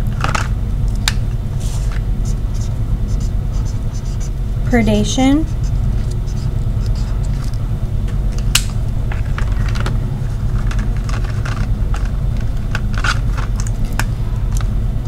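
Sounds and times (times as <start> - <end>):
steady low hum: 0.0 - 15.0
markers clicking and clattering: 9.1 - 14.6.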